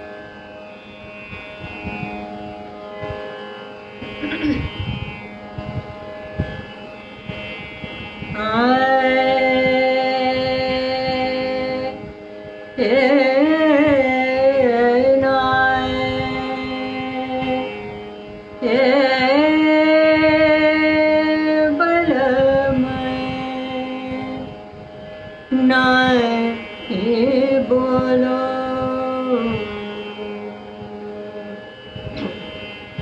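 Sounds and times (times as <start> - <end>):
steady drone: 0.0 - 22.1, 22.7 - 33.0
woman singing: 8.4 - 12.1, 12.8 - 17.9, 18.6 - 24.6, 25.5 - 31.6.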